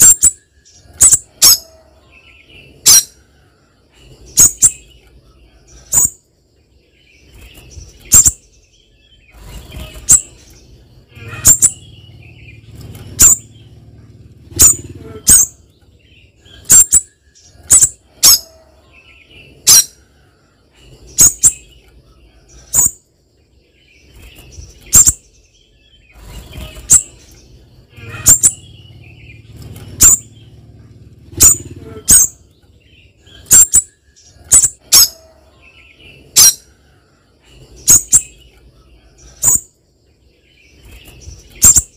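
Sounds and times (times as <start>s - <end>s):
bird giving high-pitched calls: 0.0s - 2.0s, 2.8s - 3.2s, 4.3s - 4.8s, 11.1s - 12.1s, 13.1s - 13.5s, 14.5s - 15.7s, 16.4s - 18.8s, 19.6s - 20.0s, 21.1s - 21.6s, 24.9s - 25.2s, 27.9s - 30.4s, 31.3s - 32.5s, 33.2s - 35.4s, 36.3s - 36.7s, 37.8s - 38.3s.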